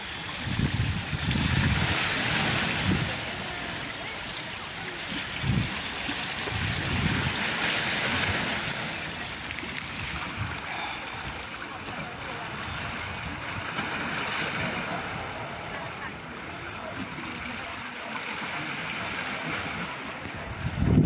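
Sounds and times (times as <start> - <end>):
sea waves washing against rocks: 0.0 - 21.0
wind gusting on microphone: 0.3 - 3.6, 5.2 - 10.7, 19.5 - 21.0.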